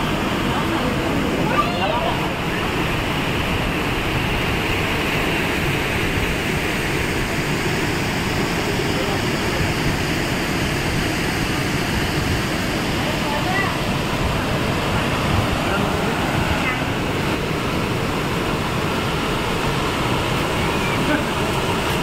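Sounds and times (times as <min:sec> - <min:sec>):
waterfall roaring: 0:00.0 - 0:22.0.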